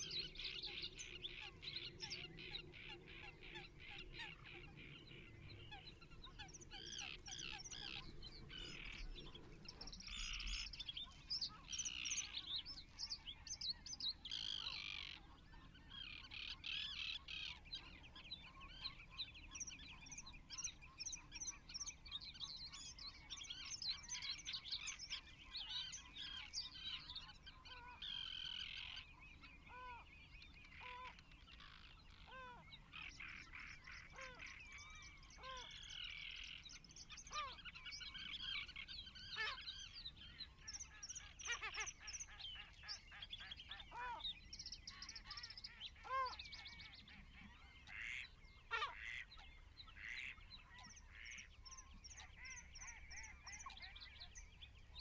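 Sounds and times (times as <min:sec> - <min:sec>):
birds chirping and calling: 0:00.0 - 0:55.0
short lower bird calls: 0:29.6 - 0:55.0.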